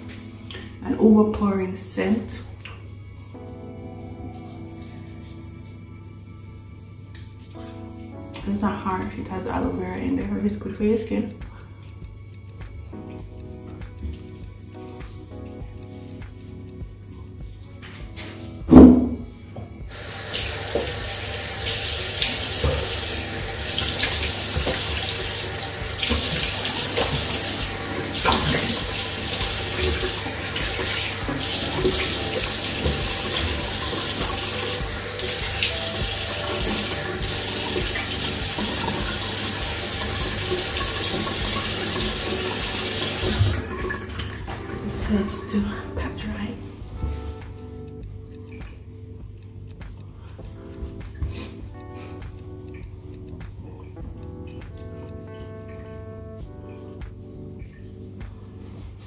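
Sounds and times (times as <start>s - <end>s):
tap running with water splashing: 11.3s - 19.2s, 19.8s - 51.5s
sharp knock: 18.7s - 19.3s.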